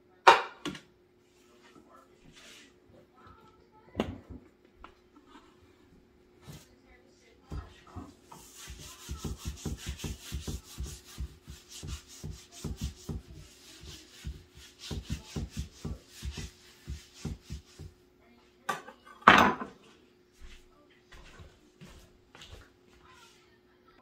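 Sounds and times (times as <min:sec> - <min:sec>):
paper towel rubbing on wood: 0:07.6 - 0:18.0.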